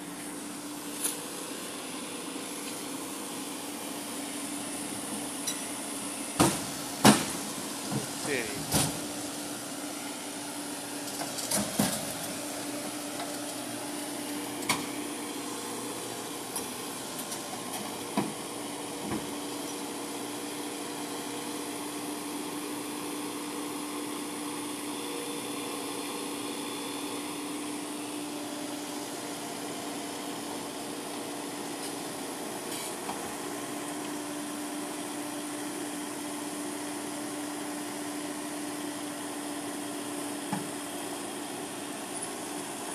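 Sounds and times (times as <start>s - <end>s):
diesel engine running: 0.0s - 33.8s.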